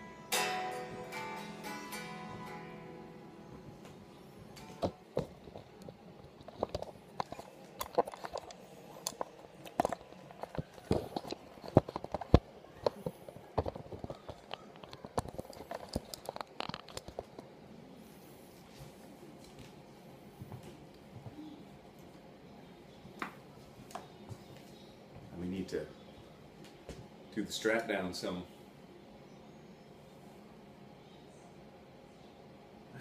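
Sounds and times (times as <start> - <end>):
guitar handling clicks and taps: 0.3 - 12.4.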